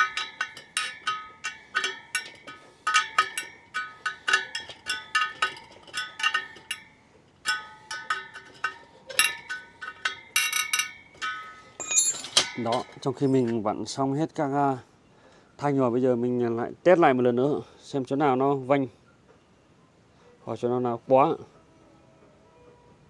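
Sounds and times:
wrench pinging on metal spokes: 0.0 - 13.6.

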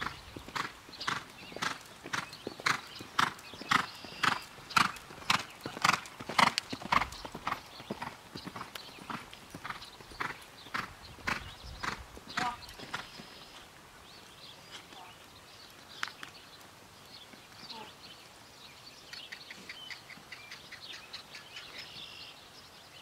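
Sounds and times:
horse hoofbeats on dirt: 0.0 - 13.6.

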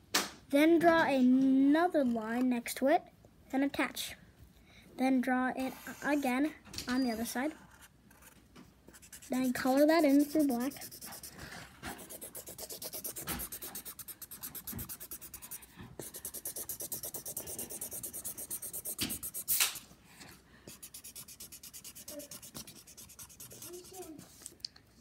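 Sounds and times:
marker scribbling on paper: 7.2 - 19.8, 20.7 - 24.5.

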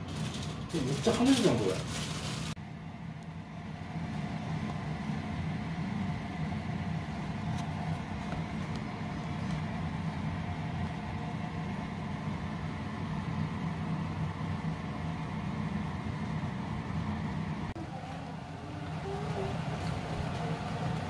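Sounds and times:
low mechanical hum: 0.0 - 21.0
faint high tone: 17.8 - 19.8.

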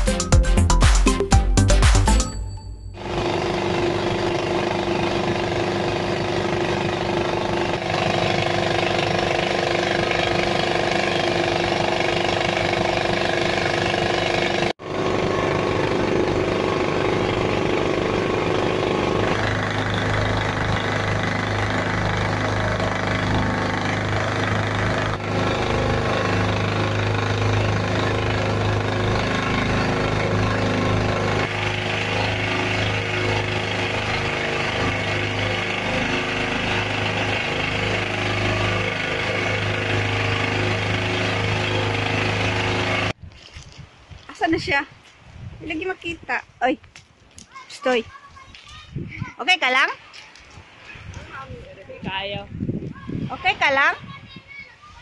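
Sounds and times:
boat engine pulsing: 0.0 - 43.2.

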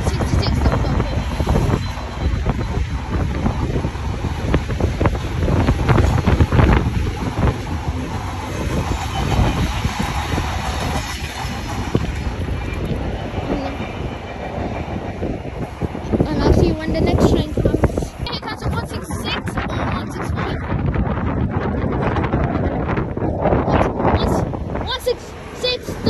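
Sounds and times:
freight train rumble: 0.0 - 26.0
wheels clattering over rail joints: 4.5 - 15.3.

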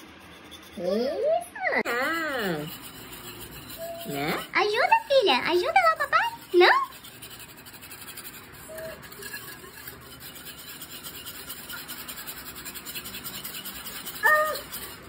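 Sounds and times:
whisk rattling against bowl: 0.0 - 15.0
young child's voice: 14.2 - 14.6.

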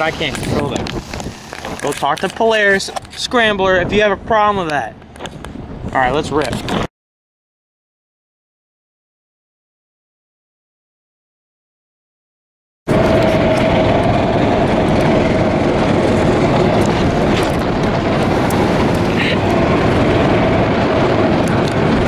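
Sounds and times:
wind noise on microphone: 0.0 - 6.9, 12.9 - 22.0
golf cart running: 12.9 - 22.0.

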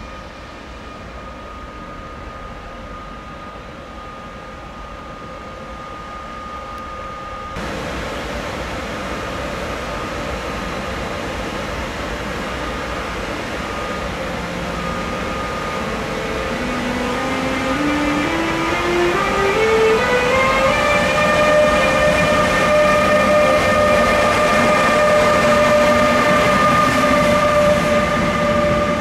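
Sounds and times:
electric train rumbling: 0.0 - 29.0
locomotive rising scale of tones: 6.0 - 29.0.

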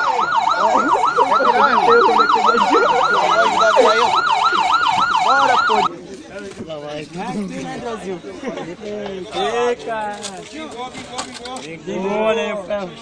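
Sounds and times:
police siren yelping: 0.0 - 5.9.

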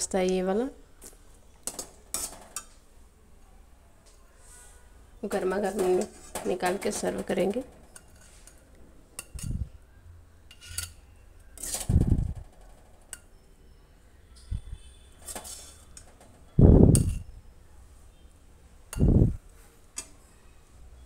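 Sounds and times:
spatula scraping metal pan: 1.7 - 2.7, 5.6 - 8.6, 10.5 - 11.9, 15.2 - 16.1.

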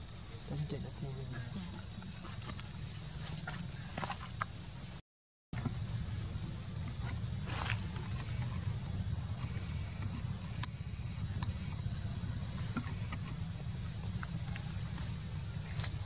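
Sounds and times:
insects droning: 0.0 - 5.0, 5.6 - 16.0
low hum: 5.6 - 16.0.

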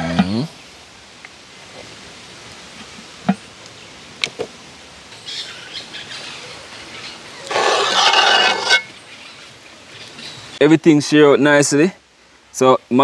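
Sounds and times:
birds chirping: 1.8 - 10.7
metal spoon scraping metal pots: 7.4 - 8.9.

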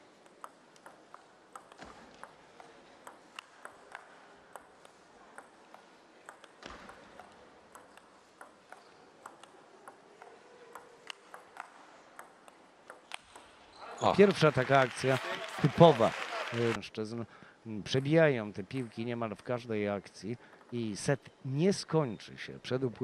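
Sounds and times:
table tennis ball ticks: 0.2 - 13.5.

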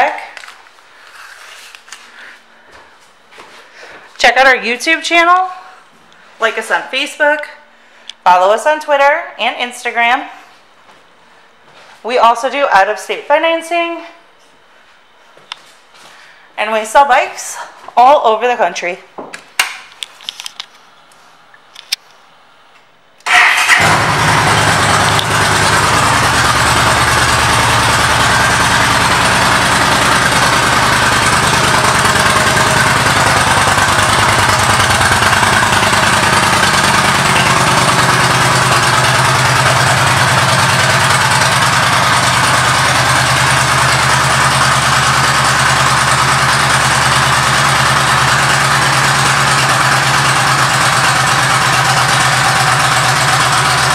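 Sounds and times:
motorcycle engine idling: 23.3 - 53.9.

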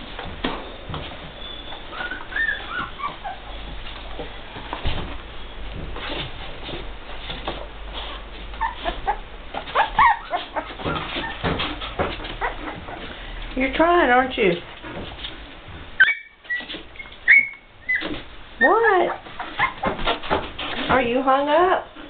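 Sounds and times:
rustling and soft knocks: 0.0 - 13.6, 14.6 - 17.2
puppies whimpering: 1.4 - 4.0, 8.6 - 13.2, 16.0 - 20.0.

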